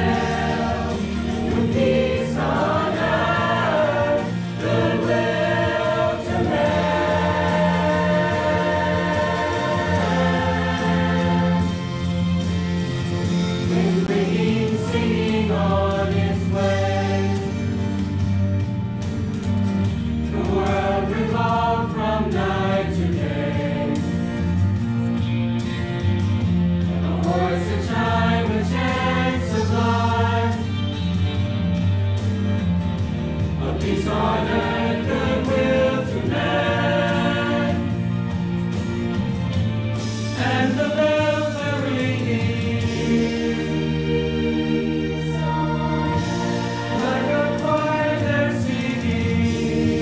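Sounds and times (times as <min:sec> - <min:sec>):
choir singing: 0:00.0 - 0:12.8, 0:13.6 - 0:17.9, 0:20.3 - 0:24.2, 0:26.9 - 0:30.8, 0:33.5 - 0:38.5, 0:40.2 - 0:50.0.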